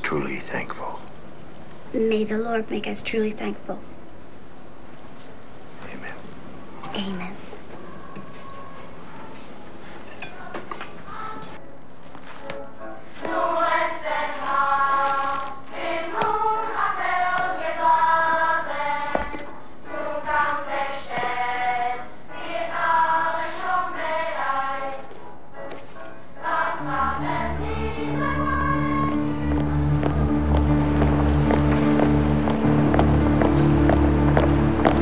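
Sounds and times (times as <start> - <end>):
choir singing: 13.0 - 25.2, 26.4 - 35.0.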